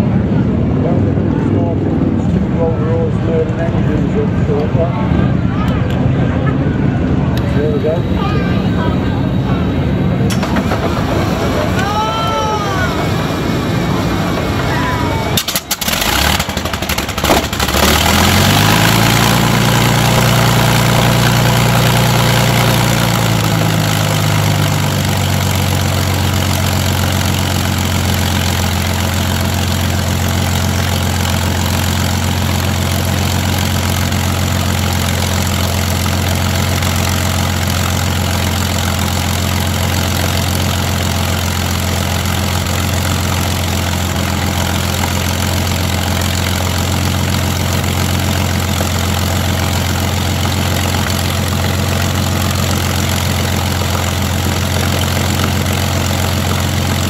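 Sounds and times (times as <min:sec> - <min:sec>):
aircraft engine starting and idling: 0:00.0 - 0:57.0.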